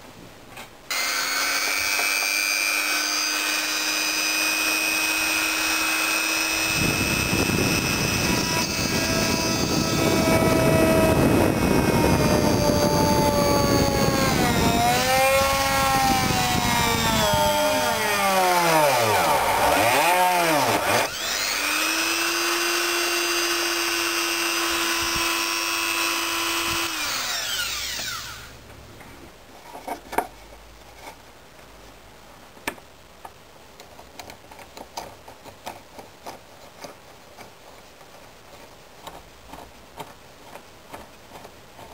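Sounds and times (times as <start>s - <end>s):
rotary tool whine: 0.9s - 28.6s.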